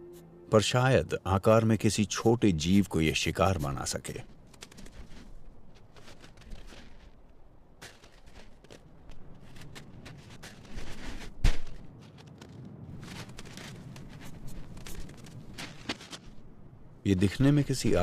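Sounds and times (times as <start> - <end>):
wolf footsteps scuffing and crunching: 3.6 - 16.6.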